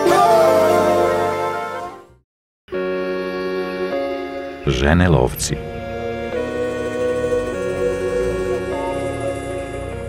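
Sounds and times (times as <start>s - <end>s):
slow sustained chords: 2.7s - 10.0s.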